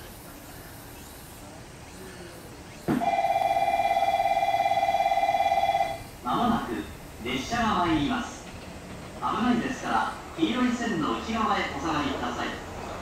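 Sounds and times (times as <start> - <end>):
faint outdoor background: 0.0 - 13.0
electric warning bell ringing: 3.0 - 6.1.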